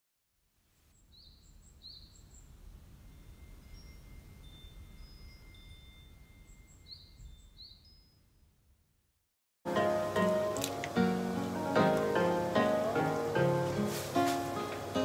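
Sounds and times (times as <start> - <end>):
metal wind chime ringing: 3.0 - 8.1.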